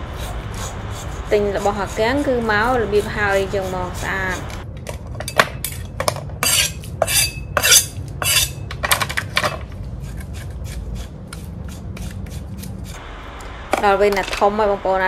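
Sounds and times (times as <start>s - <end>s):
low steady hum: 0.0s - 15.0s
metal utensils clattering and scraping: 5.2s - 9.6s.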